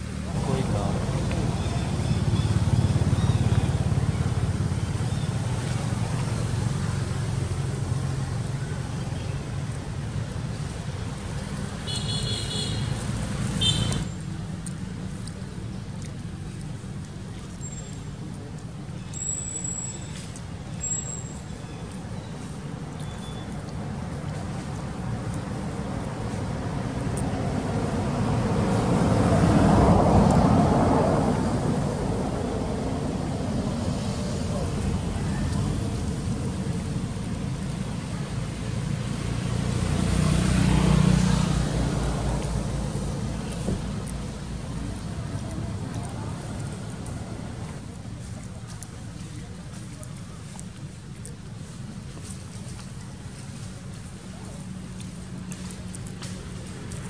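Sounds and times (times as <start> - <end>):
vehicle engine passing by: 0.0 - 11.8, 23.8 - 57.0
low outdoor rumble: 0.0 - 57.0.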